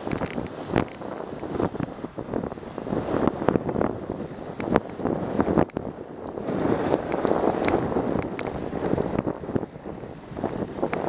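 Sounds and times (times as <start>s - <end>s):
wind on microphone: 0.0s - 11.0s.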